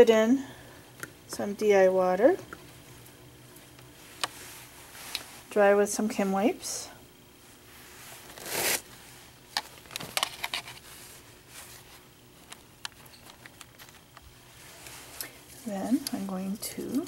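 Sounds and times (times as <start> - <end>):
paper tissues rustling and crinkling: 7.6 - 17.0.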